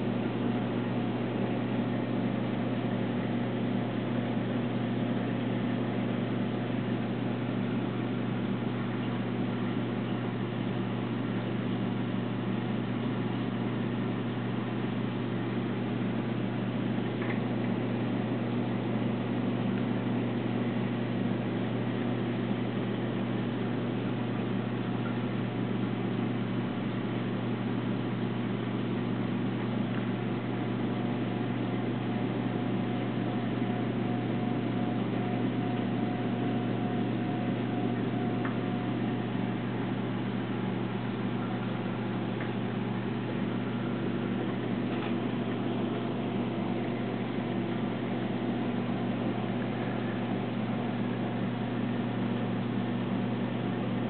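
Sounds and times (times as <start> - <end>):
aquarium pumps humming: 0.0 - 54.0
faint thin whine: 29.1 - 54.0.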